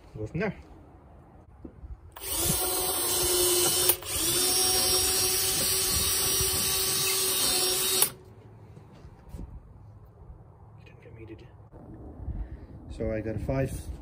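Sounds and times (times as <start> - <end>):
cordless drill boring into wood: 2.2 - 8.2.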